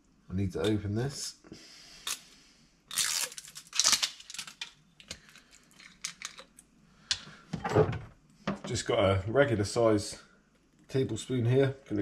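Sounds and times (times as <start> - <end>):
plastic seal tearing: 2.9 - 4.8.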